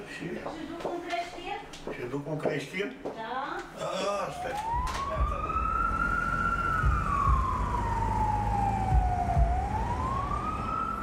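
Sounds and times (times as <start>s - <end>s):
siren wailing: 4.3s - 11.0s.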